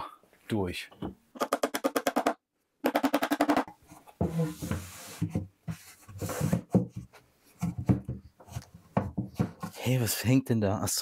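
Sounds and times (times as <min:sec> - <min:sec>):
scraping and rubbing: 0:03.9 - 0:09.9
knocks: 0:06.6 - 0:08.3, 0:08.9 - 0:09.7.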